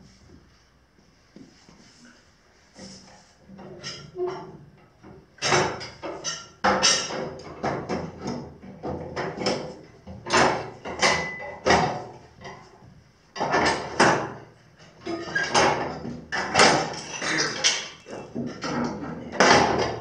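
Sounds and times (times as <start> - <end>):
metal parts knocking and clanking: 5.4 - 12.6, 13.4 - 20.0.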